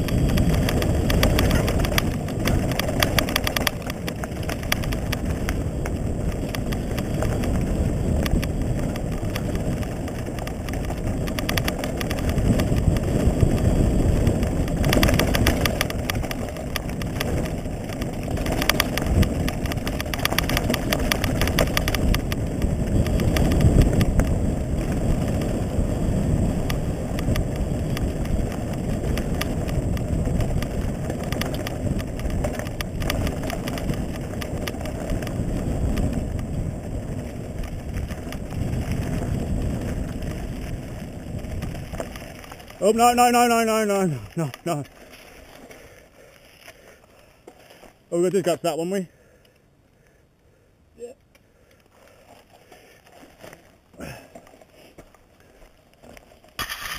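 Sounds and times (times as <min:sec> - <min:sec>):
wind on microphone: 0:00.0 - 0:44.9
bike knocks and rattles: 0:00.0 - 0:45.9, 0:52.1 - 0:56.9
bike tyres rumbling over gravel: 0:00.0 - 0:50.7, 0:51.4 - 0:56.9.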